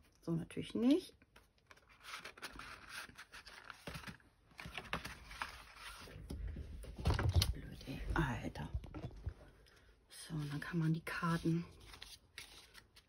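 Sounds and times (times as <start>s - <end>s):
paper rustling and scraping: 1.6s - 6.4s, 10.4s - 13.0s.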